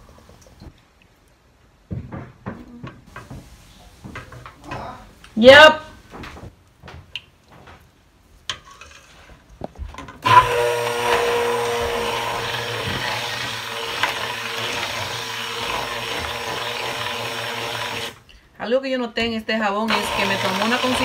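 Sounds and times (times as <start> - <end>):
stick blender running in pot: 10.2 - 18.2, 19.9 - 21.0.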